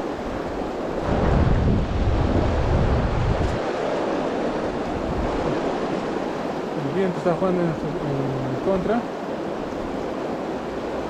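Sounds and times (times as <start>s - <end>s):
wind buffeting microphone: 0.0s - 6.8s
river rushing over rocks: 0.0s - 11.0s.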